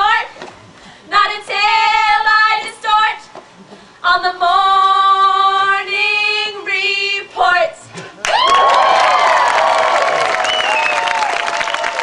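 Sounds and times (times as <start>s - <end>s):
two women singing together: 0.0s - 3.4s, 4.0s - 8.0s.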